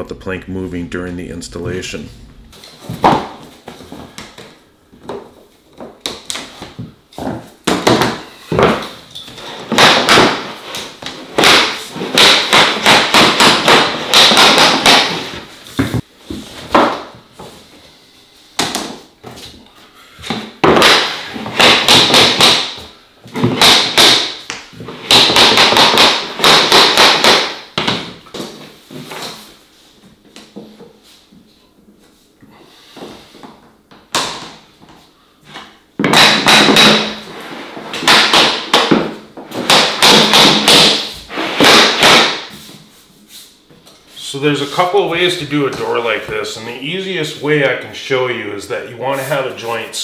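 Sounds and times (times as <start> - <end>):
vinyl planks knocking and clacking: 9.6 - 16.0, 20.2 - 28.6, 33.9 - 37.2, 37.9 - 42.6.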